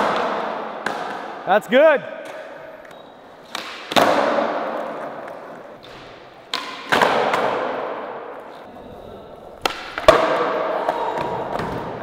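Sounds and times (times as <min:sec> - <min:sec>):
skateboard slapping down: 0:09.6 - 0:11.9.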